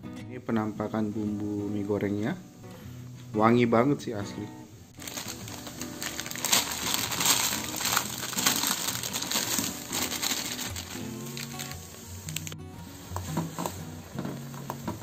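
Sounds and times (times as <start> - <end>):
noodle crumbs shaken from packet: 5.0 - 12.5.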